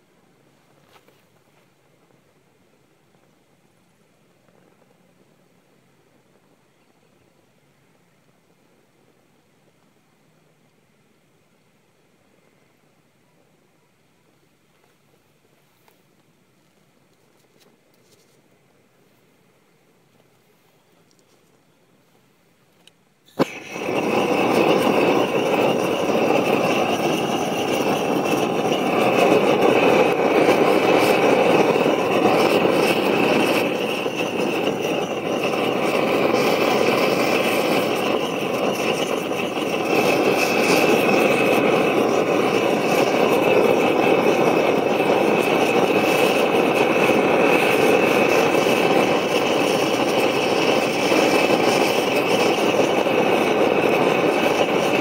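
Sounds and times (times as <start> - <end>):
flames whooshing and roaring: 23.4 - 55.0.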